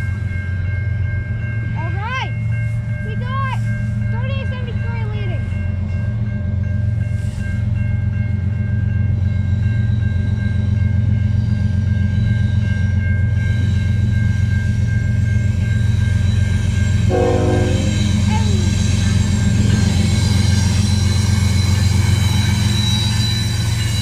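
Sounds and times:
crossing bell ringing: 0.0s - 24.0s
diesel freight train approaching: 0.0s - 24.0s
train horn: 17.1s - 18.8s.

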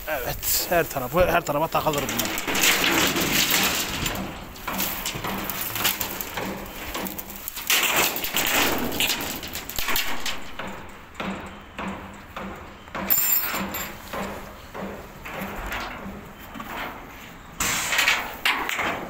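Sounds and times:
tarpaulin rustling and dragging: 0.0s - 9.5s
knocks and clicks: 1.8s - 17.0s.

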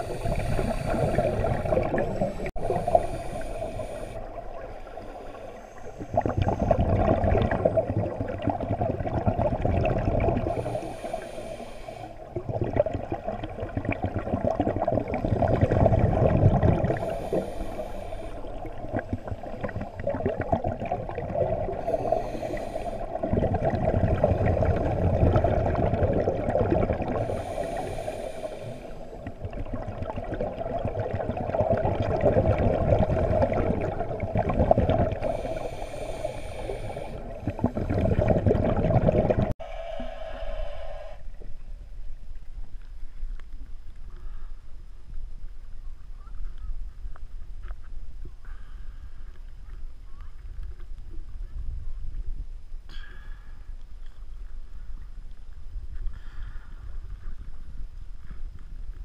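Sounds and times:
regulator hissing inhale: 0.0s - 6.1s, 10.5s - 12.3s, 16.8s - 18.8s, 21.7s - 23.2s, 27.1s - 29.3s, 35.2s - 38.0s, 39.6s - 41.4s
bubbling exhaled air: 0.0s - 41.5s.

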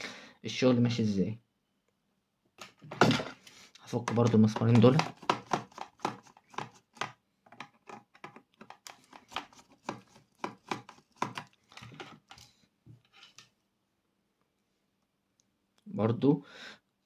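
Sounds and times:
screwdriver clicking and scraping: 3.8s - 12.5s.

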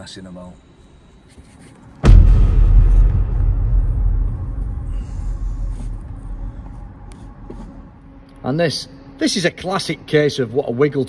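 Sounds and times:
loud boom with deep rumble: 2.0s - 7.9s.

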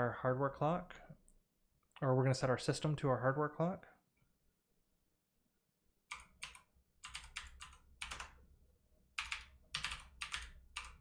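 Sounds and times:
computer keyboard typing: 6.1s - 8.4s, 9.2s - 11.0s.

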